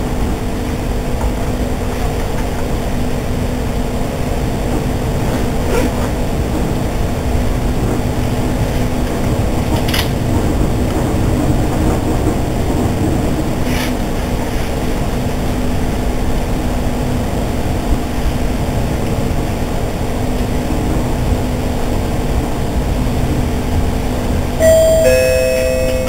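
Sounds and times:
train rumbling: 0:00.0 - 0:26.0
two-note descending chime: 0:24.6 - 0:26.0.

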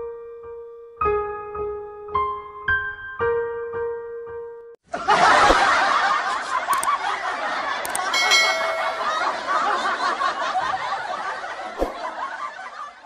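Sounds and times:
canned audience laughter: 0:04.9 - 0:13.0
sharp clicks: 0:06.7 - 0:07.0, 0:07.8 - 0:08.1
short ringing chime: 0:08.1 - 0:09.7.

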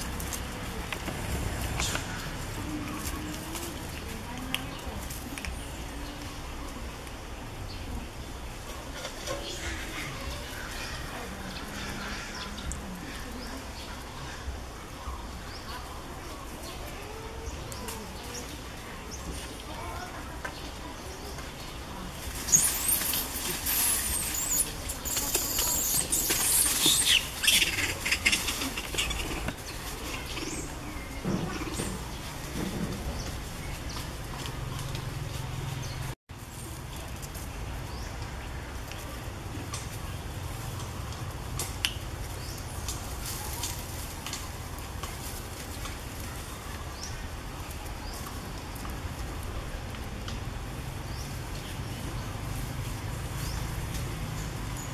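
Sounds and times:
rustling in dry leaves: 0:00.0 - 0:54.9
high squeaky chirps: 0:22.5 - 0:31.0.

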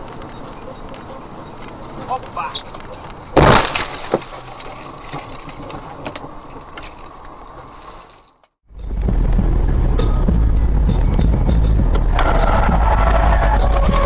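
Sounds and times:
loud low road rumble: 0:00.0 - 0:14.0
vehicle road noise: 0:00.0 - 0:14.0
vehicle crash into animal: 0:03.4 - 0:04.4.

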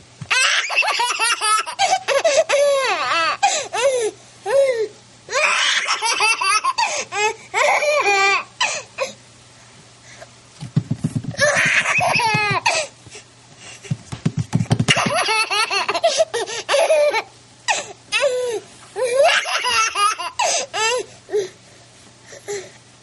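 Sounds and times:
baby laughing: 0:00.3 - 0:03.4, 0:05.4 - 0:08.4, 0:11.3 - 0:12.9, 0:14.8 - 0:17.3, 0:19.0 - 0:21.0.

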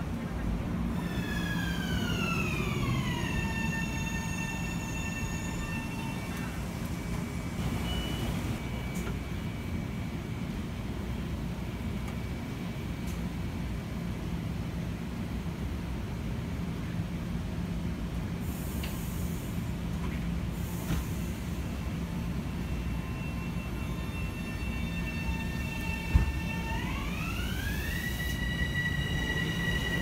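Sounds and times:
electrical hum of standing train: 0:00.0 - 0:30.0
train traction motor whine: 0:00.9 - 0:13.3, 0:20.5 - 0:30.0.

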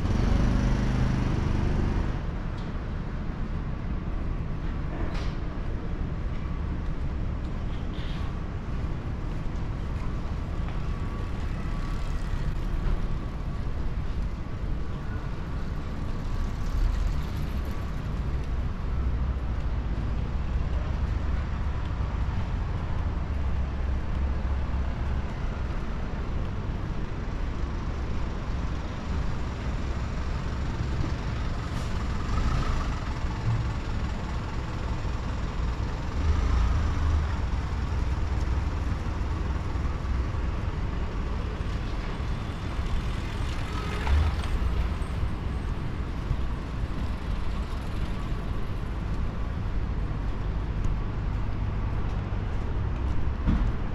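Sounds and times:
road traffic rumble: 0:00.0 - 0:53.9.

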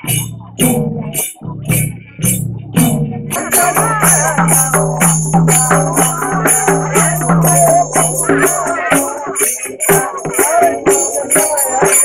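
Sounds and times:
drum beat: 0:00.0 - 0:12.0
jingling percussion: 0:00.0 - 0:12.0
person singing: 0:03.3 - 0:12.0.

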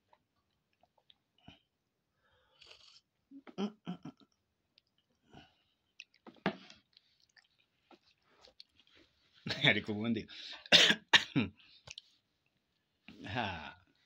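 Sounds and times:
person slurping: 0:02.5 - 0:03.5
gulps and wet mouth clicks: 0:11.8 - 0:12.1.

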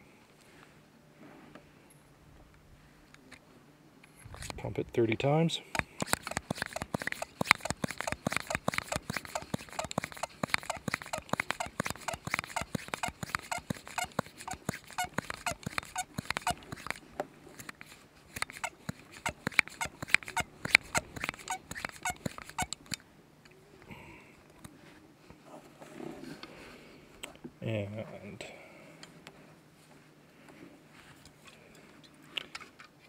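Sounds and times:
fuel pump plunger squeaking: 0:05.7 - 0:17.0, 0:18.3 - 0:23.0.

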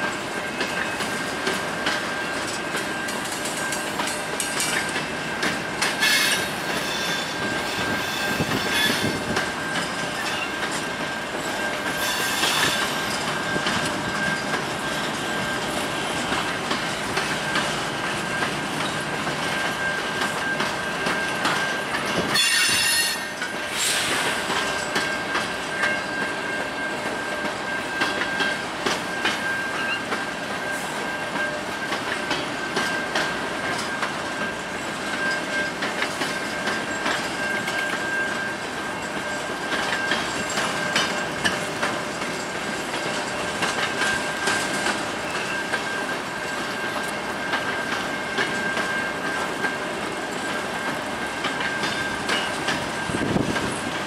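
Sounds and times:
train wheels rumbling on rail: 0:00.0 - 0:54.0
high wheel squeal: 0:00.5 - 0:54.0
wheel screeches: 0:06.0 - 0:10.6, 0:11.4 - 0:15.7, 0:21.2 - 0:25.2.

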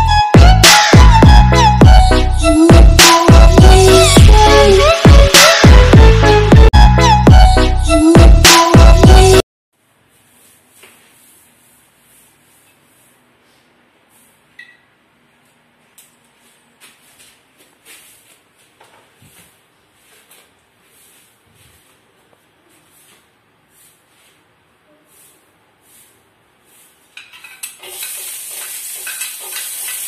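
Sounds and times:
electronic music: 0:00.0 - 0:09.4
oil hissing in wok: 0:25.1 - 0:30.0.

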